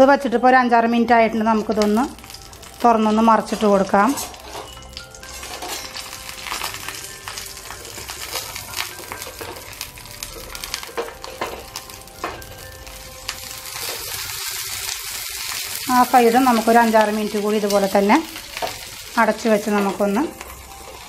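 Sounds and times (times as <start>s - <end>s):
oil sizzling and crackling: 1.2s - 21.0s
metal spatula scraping pan: 3.3s - 6.7s.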